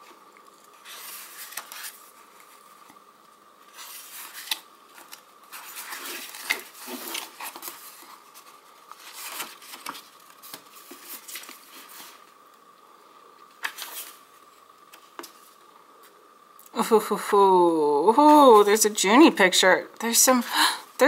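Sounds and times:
book pages turning: 0.4 - 12.7, 13.4 - 16.2.

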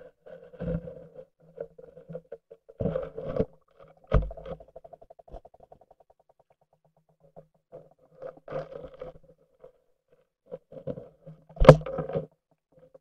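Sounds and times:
muffled underwater knocks and rumbles: 11.6 - 12.2.

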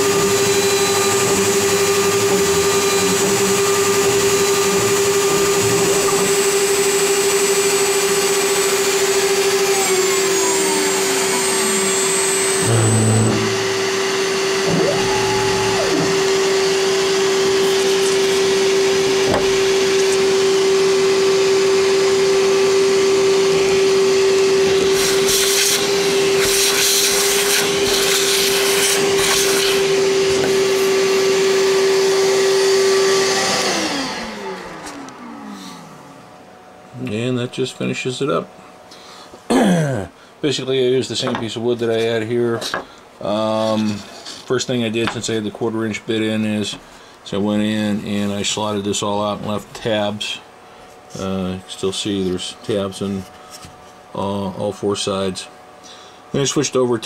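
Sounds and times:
router spindle whine: 0.0 - 36.4
stepper motors whining in sweeps: 7.2 - 21.3.

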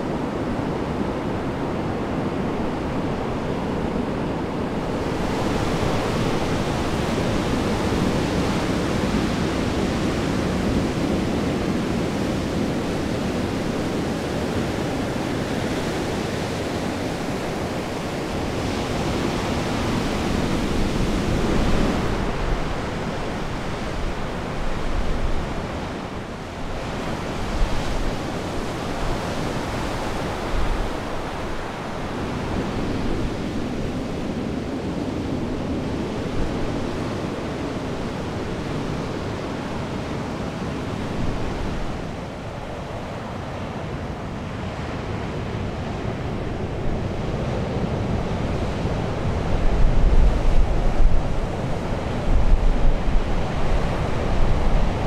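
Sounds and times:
ocean surf: 0.0 - 55.0
wind: 0.0 - 55.0
wind rumble on microphone: 0.0 - 55.0.

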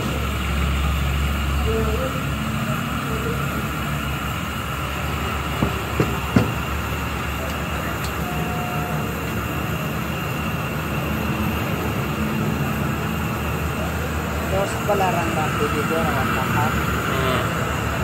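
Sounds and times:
gas burner roaring: 0.0 - 18.0
sharp knocks: 5.6 - 6.6.

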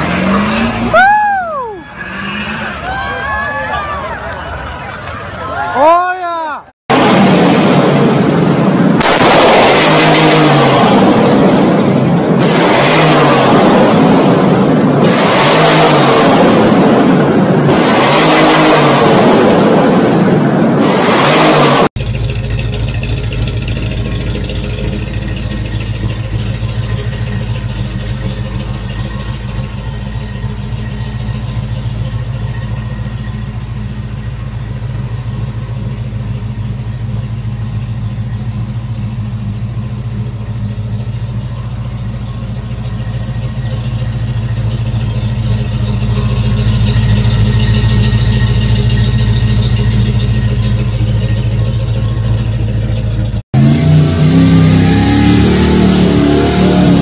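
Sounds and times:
truck engine idling: 22.0 - 57.0.

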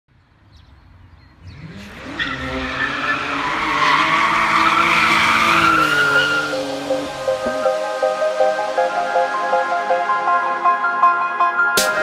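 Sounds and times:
racing car engine revving: 1.4 - 8.4
tyre squeal: 2.0 - 7.2.

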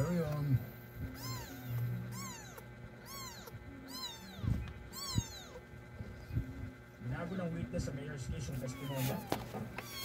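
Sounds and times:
kittens mewing: 1.0 - 6.8, 8.6 - 10.0.

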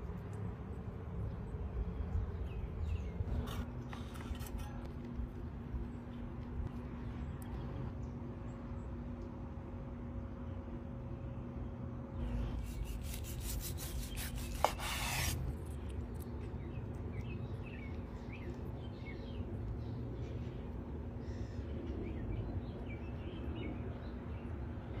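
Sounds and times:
steady low hum: 0.0 - 25.0
knife sawing through steak: 12.6 - 15.4.

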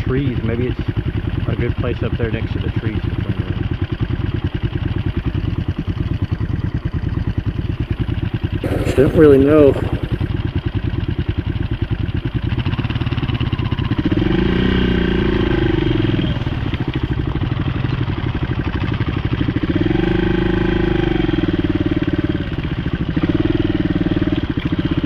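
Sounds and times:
motorcycle engine revving: 8.5 - 10.6, 13.0 - 25.0.

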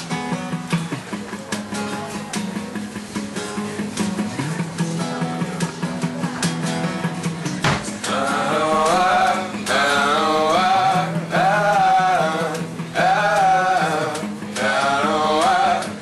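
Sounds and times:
strummed acoustic guitars: 0.0 - 16.0
men singing: 7.7 - 16.0.

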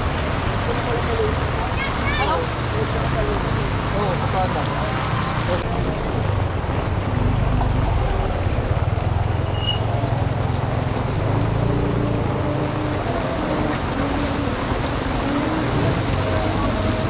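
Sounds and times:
torrential rain on a street: 0.0 - 17.0
motorcycle engine rumble: 4.8 - 17.0.

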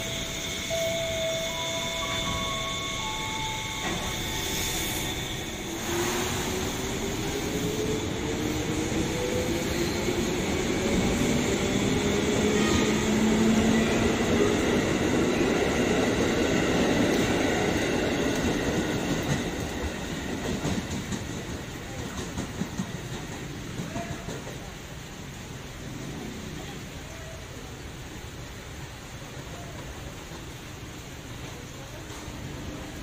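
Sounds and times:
electric train motors whining: 0.0 - 16.2
train wheels rumbling on rails: 0.0 - 33.0.

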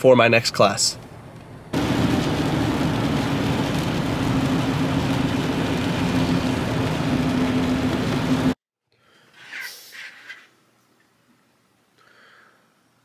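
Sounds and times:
road and engine noise: 0.3 - 8.6
low droning hum: 1.6 - 8.6.

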